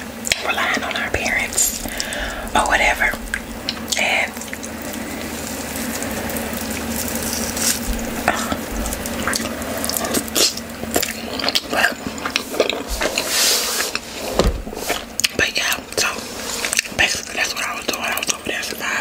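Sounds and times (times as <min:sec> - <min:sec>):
wet squishing of dough kneading: 0:00.2 - 0:18.8
close-up chewing: 0:00.2 - 0:18.9.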